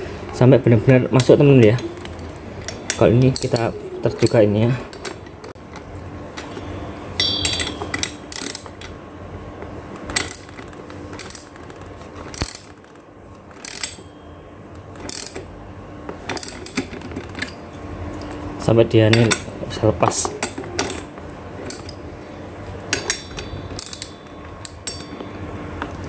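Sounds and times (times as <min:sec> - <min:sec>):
ratchet wrench clicking: 0:13.6 - 0:14.0, 0:15.1 - 0:15.4.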